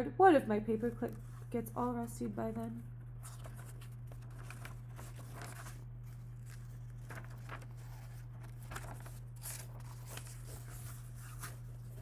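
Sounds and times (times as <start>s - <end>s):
steady low hum: 0.0s - 12.0s
book pages rustling: 1.0s - 1.5s, 3.0s - 12.0s.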